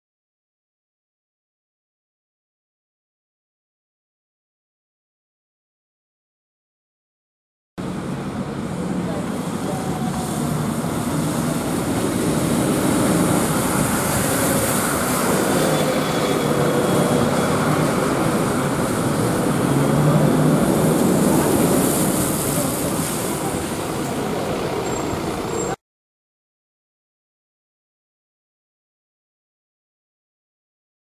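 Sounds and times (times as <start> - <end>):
city buses driving past: 7.8 - 25.8.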